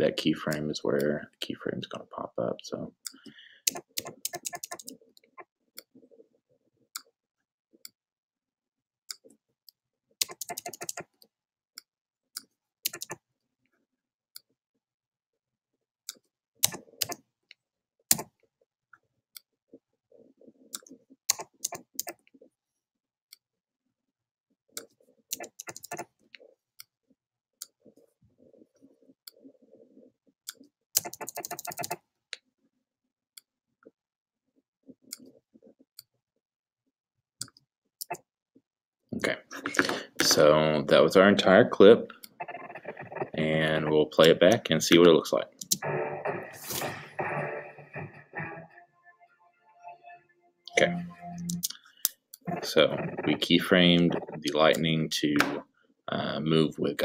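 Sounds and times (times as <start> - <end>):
mouse and keyboard clicking: 3.1 - 5.0, 10.2 - 11.1, 12.9 - 13.2, 16.6 - 17.2, 20.8 - 22.2, 25.3 - 26.1, 30.5 - 32.0.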